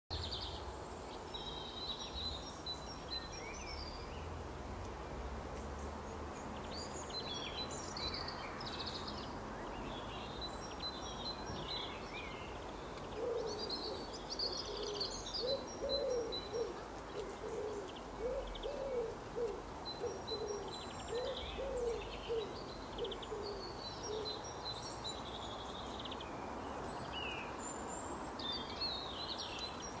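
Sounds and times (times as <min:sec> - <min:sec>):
small songbirds chirping: 0:00.1 - 0:30.0
low repeated bird calls: 0:06.8 - 0:26.0.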